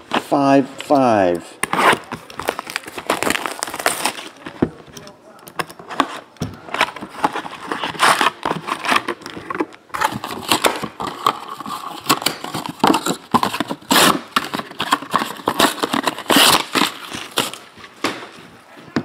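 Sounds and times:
foil packs crinkling: 2.0 - 4.6, 6.7 - 18.0.

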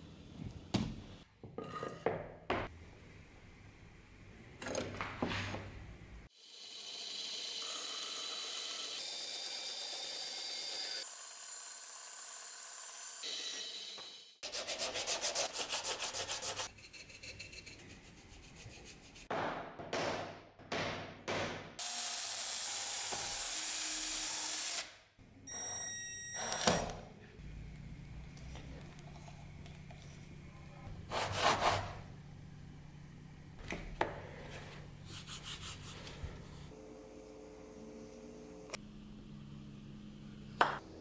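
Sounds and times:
band saw cutting wood: 6.4 - 16.7
hand sanding wood: 14.4 - 19.3, 35.1 - 36.1.

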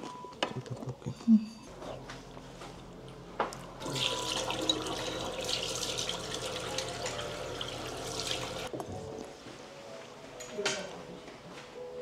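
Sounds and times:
trickle of running water: 3.8 - 8.7.

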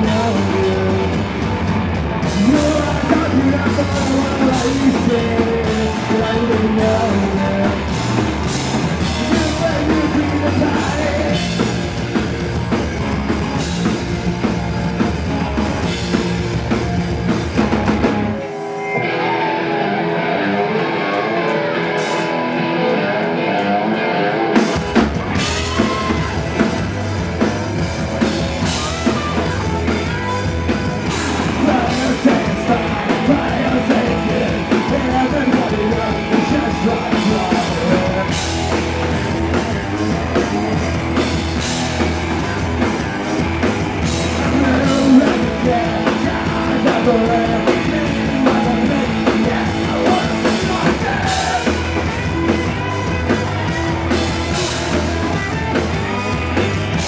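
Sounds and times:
man singing lead vocals: 0.0 - 14.5, 25.3 - 27.4, 28.2 - 57.0
bass and drums: 0.0 - 19.6, 20.7 - 23.8, 24.5 - 57.0
electric guitars: 0.0 - 57.0.

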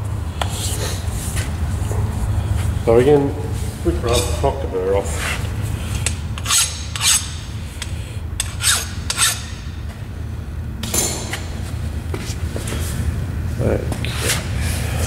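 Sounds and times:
low hum: 0.0 - 15.0
hand file rasping on metal: 6.4 - 7.3.

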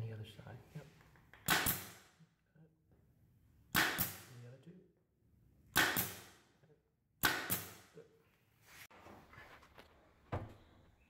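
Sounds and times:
air pin nailer firing: 1.4 - 2.1, 3.7 - 4.4, 5.7 - 6.4, 7.2 - 7.9.

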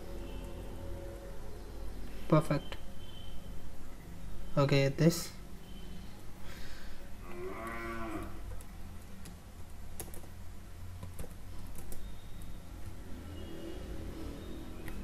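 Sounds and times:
keyboard keystrokes: 8.5 - 10.4, 11.0 - 12.5.

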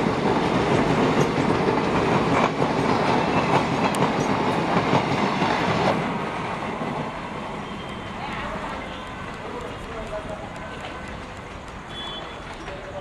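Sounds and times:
train passing at speed: 0.0 - 13.0
wheels clacking over rail joints: 8.4 - 13.0.

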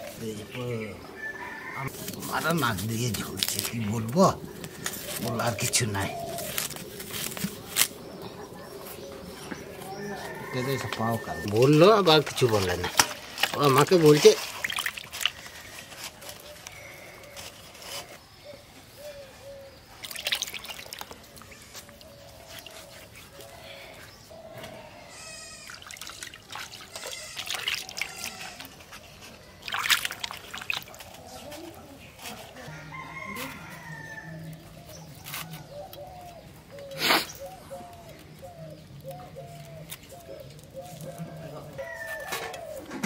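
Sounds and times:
hands scrubbing: 9.7 - 16.5, 25.7 - 31.1
water splashing in a steel bowl: 11.4 - 15.9, 20.0 - 21.6, 25.6 - 28.8, 29.5 - 31.3
chickens clucking: 30.8 - 43.0.

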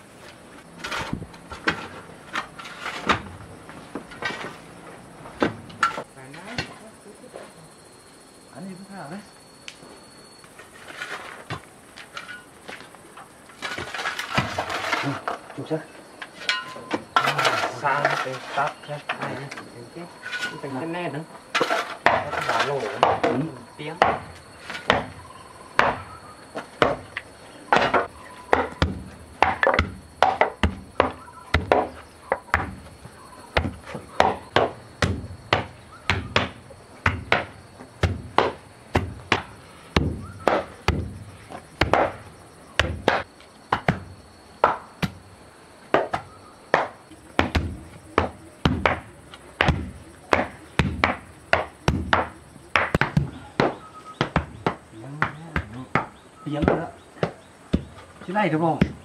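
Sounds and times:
hand tool striking wood: 21.6 - 25.2, 25.8 - 32.9, 33.6 - 41.1, 41.8 - 45.2, 45.9 - 59.0.

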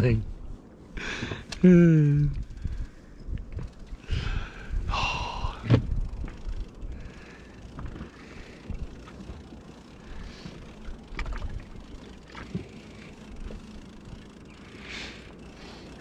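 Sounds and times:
wind rumbling on microphone: 0.0 - 9.4, 10.2 - 12.6
boat knocks and clicks: 5.6 - 6.4
water lapping against boat: 7.8 - 13.7.

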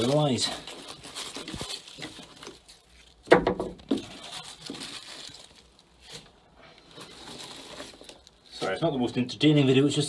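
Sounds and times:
sharp knocks: 3.3 - 4.0.

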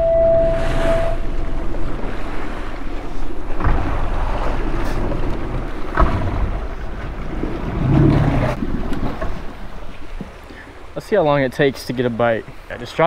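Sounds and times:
motorboat engine running: 0.0 - 8.6
water rushing along hull: 0.0 - 13.0.

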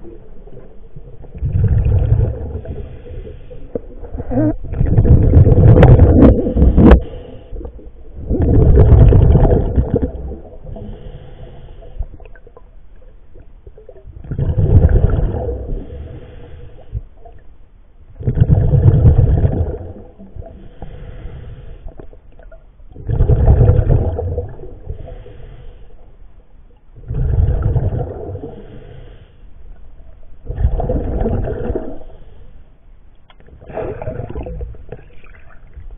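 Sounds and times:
bubbling exhaled air from regulator: 1.0 - 12.5, 13.8 - 17.0, 18.2 - 22.1, 22.9 - 25.4, 27.0 - 29.0, 30.4 - 32.3, 33.6 - 35.8
faint hiss: 24.8 - 26.8.

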